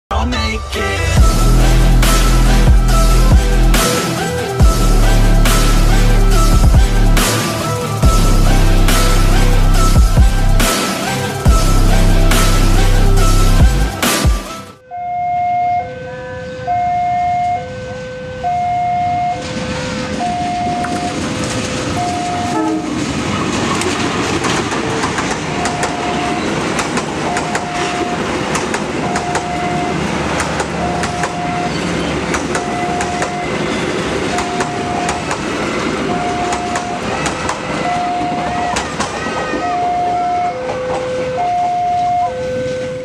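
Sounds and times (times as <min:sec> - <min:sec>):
train wheels clattering on rails: 0:19.4 - 0:41.5
electronic warning signal beeps: 0:20.2 - 0:21.2.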